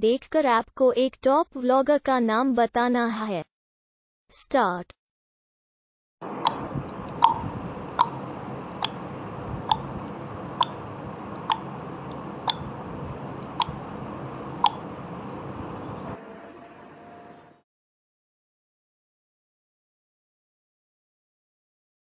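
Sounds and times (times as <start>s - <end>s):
timer ticking: 6.2s - 16.2s.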